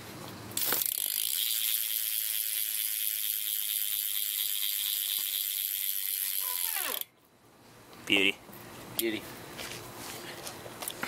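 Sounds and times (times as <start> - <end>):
bike hub ratcheting buzz: 0.5 - 7.2.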